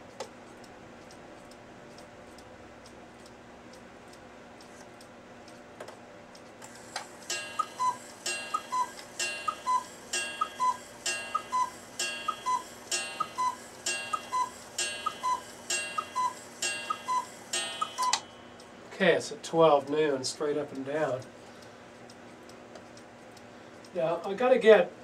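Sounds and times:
clock ticking faintly: 7.1s - 18.8s, 19.5s - 24.7s
cuckoo clock call: 7.3s - 18.8s.

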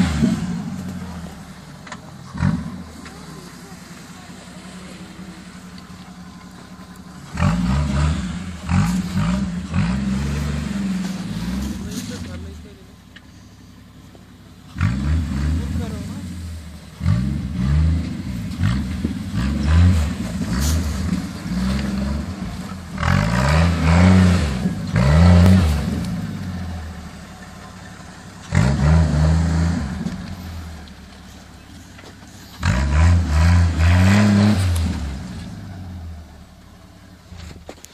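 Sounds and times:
engine revving: 0.0s - 13.3s, 14.5s - 37.6s
tyres churning snow: 0.0s - 37.9s.

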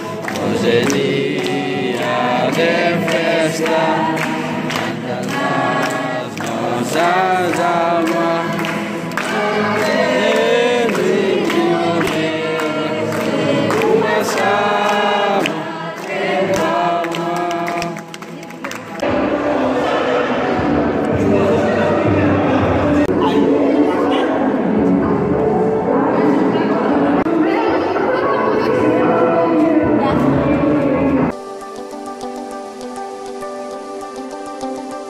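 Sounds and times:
group singing in chorus: 0.0s - 31.4s.

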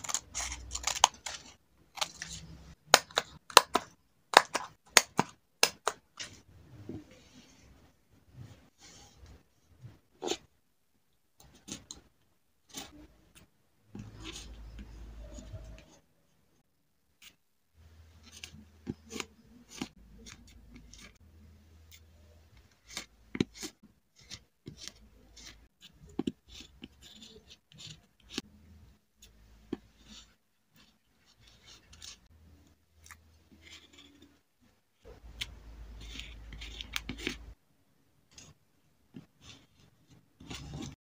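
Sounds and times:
paper rustling and scratching: 0.0s - 2.8s, 18.2s - 21.2s, 21.9s - 28.5s, 29.7s - 32.4s, 33.1s - 34.4s, 35.0s - 37.6s, 38.3s - 41.0s.

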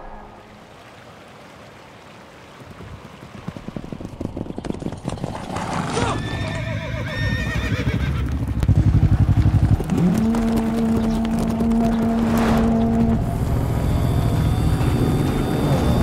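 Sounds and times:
horse hooves clip-clopping: 2.2s - 6.9s, 7.5s - 13.1s
horse whinnying: 5.7s - 8.2s.

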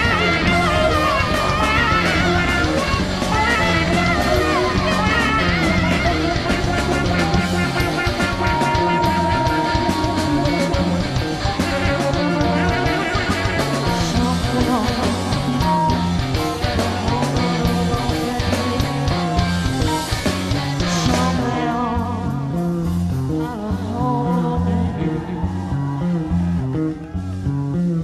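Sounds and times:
electric guitar bending high lines: 0.0s - 21.9s
rock band playing: 0.0s - 28.0s.

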